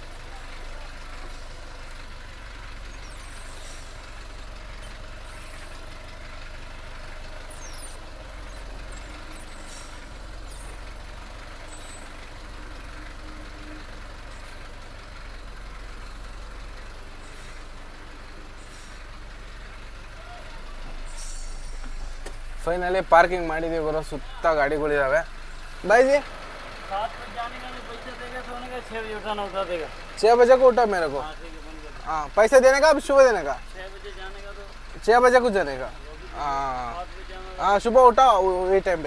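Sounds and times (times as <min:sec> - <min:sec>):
diesel truck engine running: 0:00.0 - 0:39.0
short faint hisses: 0:03.0 - 0:04.0, 0:20.9 - 0:22.4.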